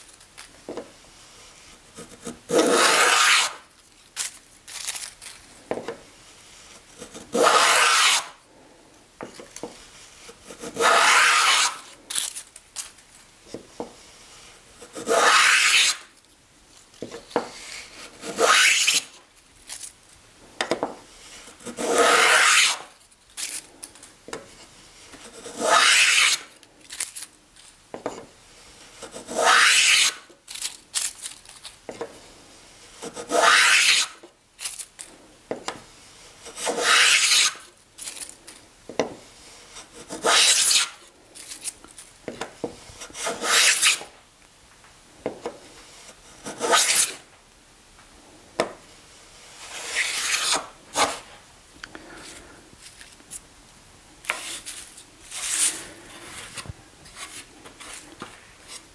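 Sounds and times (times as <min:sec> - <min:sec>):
wooden plane scraping wood: 0:01.9 - 0:03.6, 0:06.8 - 0:08.3, 0:09.6 - 0:11.9, 0:14.8 - 0:16.0, 0:17.4 - 0:19.1, 0:21.2 - 0:22.9, 0:24.6 - 0:26.5, 0:28.8 - 0:30.3, 0:33.0 - 0:34.2, 0:36.4 - 0:37.6, 0:39.7 - 0:41.0, 0:42.8 - 0:44.0, 0:45.8 - 0:47.2, 0:49.5 - 0:51.3.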